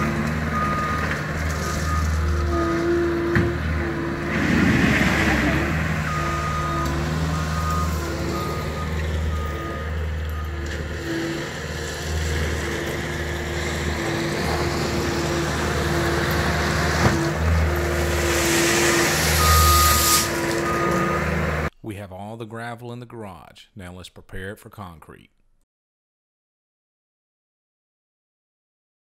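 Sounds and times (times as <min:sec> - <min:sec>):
reversing alarm beeping: 0:00.0 - 0:04.2, 0:06.0 - 0:11.4, 0:17.6 - 0:21.7
track loader diesel engine: 0:00.0 - 0:21.7
gravel rushing out of bucket: 0:04.2 - 0:06.0, 0:16.9 - 0:20.6.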